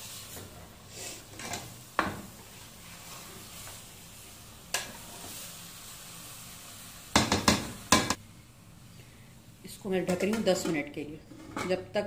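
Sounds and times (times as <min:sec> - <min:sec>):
low sizzle in pot: 0:00.0 - 0:12.0
spatula tapping pot: 0:07.1 - 0:08.2.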